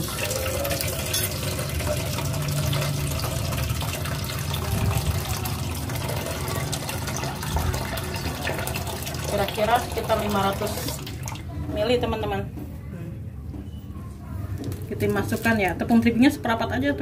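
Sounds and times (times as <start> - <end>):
tap water filling metal pot: 0.0 - 11.8.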